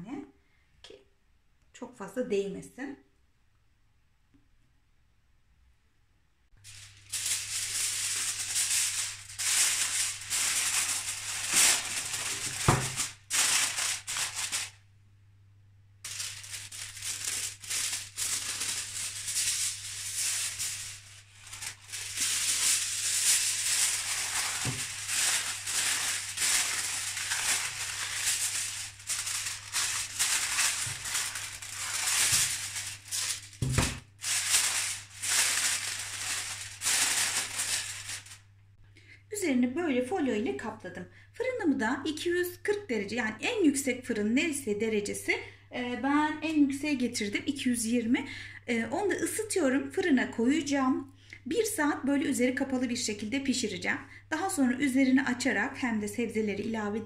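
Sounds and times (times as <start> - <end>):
aluminium foil crinkling: 6.6 - 14.8, 16.0 - 38.5.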